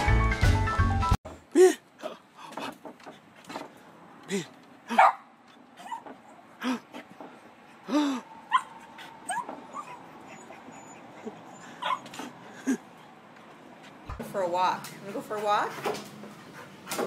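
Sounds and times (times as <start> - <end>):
small dog yipping and barking: 5.8 - 6.2, 8.5 - 12.3
dog whining: 7.9 - 12.8.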